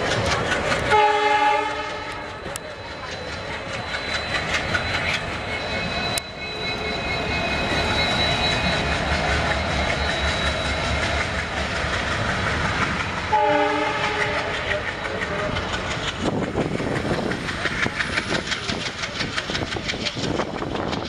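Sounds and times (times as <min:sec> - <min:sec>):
train engine drone: 0:00.0 - 0:21.0
train wheels on rails: 0:00.0 - 0:21.0
locomotive horn: 0:00.9 - 0:02.5, 0:13.3 - 0:14.6.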